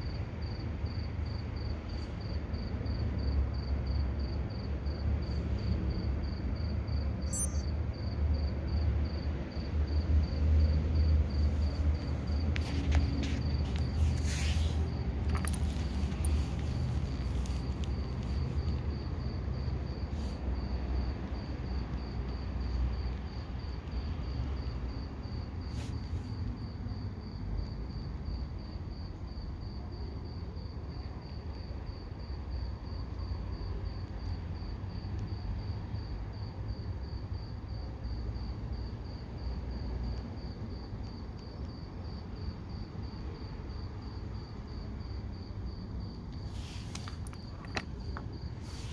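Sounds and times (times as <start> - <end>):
cricket chirping: 0.0 - 48.9
watch handling clicks and taps: 46.9 - 48.3.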